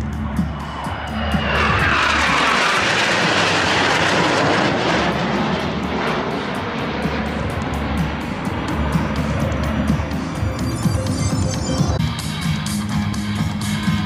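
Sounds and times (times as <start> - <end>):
jet aircraft flying past: 0.0 - 14.0.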